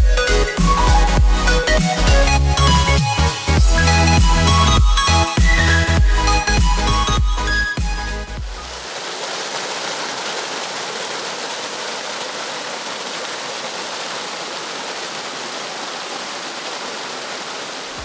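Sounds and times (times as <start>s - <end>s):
waterfall rushing over rocks: 8.4s - 18.0s.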